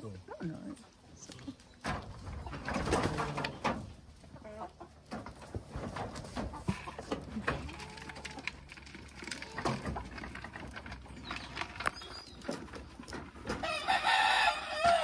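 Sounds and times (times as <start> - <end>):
feed and bucket rattling: 1.7 - 15.0
faint chicken calls: 13.4 - 15.0.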